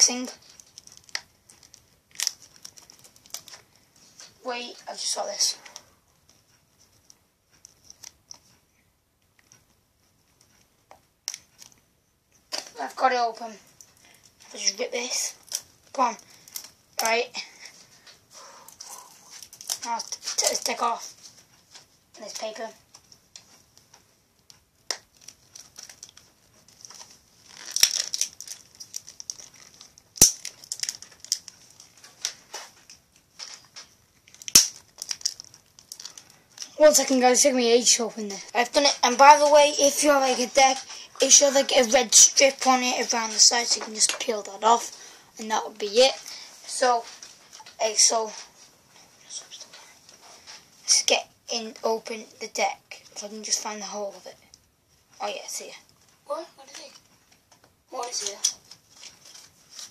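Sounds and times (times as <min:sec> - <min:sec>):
card packaging crinkling: 0:00.4 - 0:03.7, 0:25.1 - 0:36.8.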